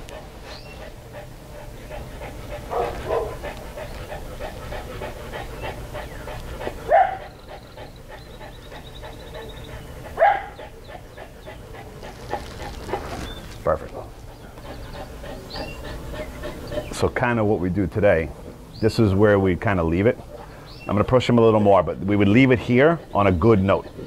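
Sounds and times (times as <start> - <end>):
dog panting: 0.0 - 18.0, 19.0 - 24.0
dog barking: 2.7 - 3.4, 6.9 - 7.3, 10.2 - 10.6.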